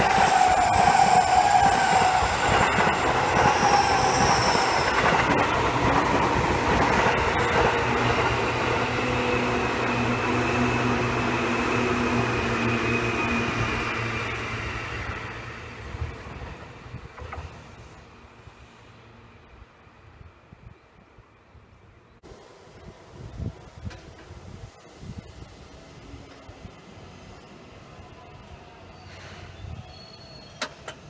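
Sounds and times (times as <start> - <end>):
pitched train hum: 0.0 - 21.2.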